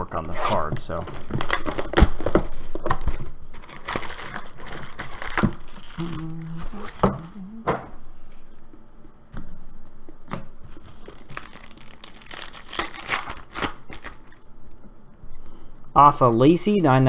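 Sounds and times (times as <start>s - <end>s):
foil pack crinkling and tearing: 0.9s - 7.0s, 10.7s - 14.4s.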